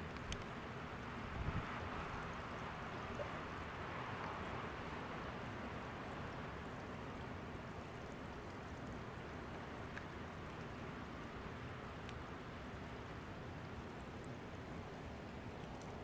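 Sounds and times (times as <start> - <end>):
rushing water: 0.0 - 16.0
faint tick: 0.1 - 0.5, 8.1 - 10.7, 12.0 - 12.3.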